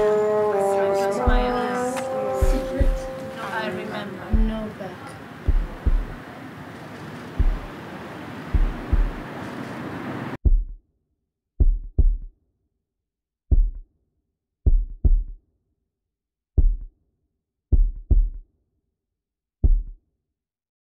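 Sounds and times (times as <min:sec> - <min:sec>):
heartbeat thuds: 0:01.2 - 0:01.7, 0:02.4 - 0:03.2, 0:04.3 - 0:04.7, 0:05.5 - 0:06.2, 0:07.4 - 0:07.8, 0:08.6 - 0:09.3, 0:10.4 - 0:10.8, 0:11.6 - 0:12.3, 0:13.5 - 0:13.8, 0:14.7 - 0:15.4, 0:16.6 - 0:16.9, 0:17.7 - 0:18.4, 0:19.6 - 0:20.0.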